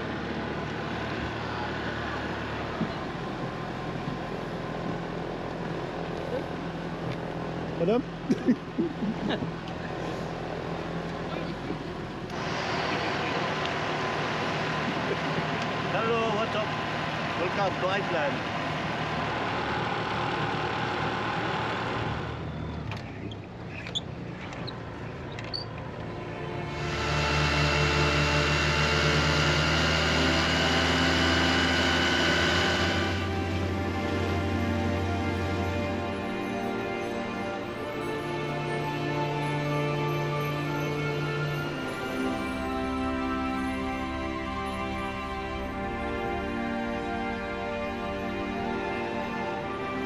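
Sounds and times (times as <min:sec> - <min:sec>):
boat engine running: 0:00.0 - 0:50.0
rush of noise: 0:12.2 - 0:22.4, 0:26.1 - 0:50.0.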